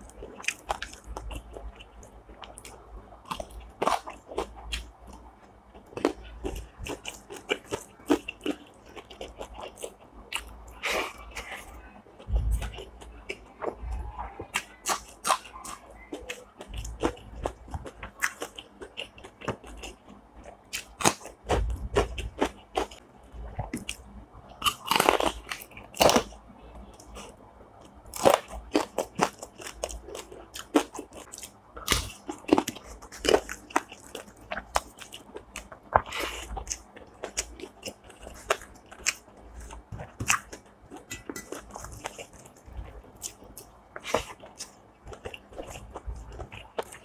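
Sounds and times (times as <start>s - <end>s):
person chewing: 0.0s - 47.0s
crunchy bites: 24.6s - 26.4s.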